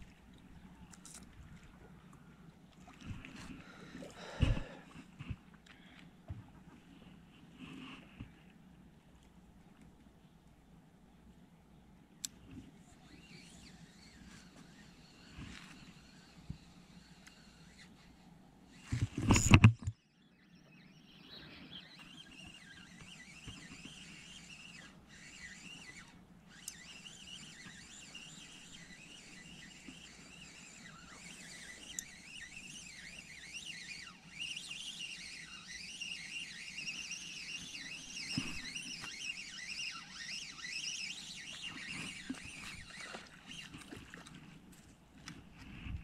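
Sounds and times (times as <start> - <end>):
fishing reel cranking: 13.1 - 18.0, 22.2 - 43.9.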